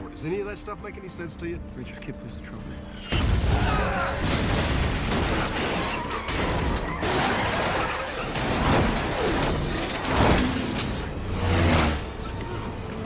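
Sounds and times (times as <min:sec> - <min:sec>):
scattered crashes: 0:03.0 - 0:12.2
explosion with shattering debris: 0:03.1 - 0:12.0.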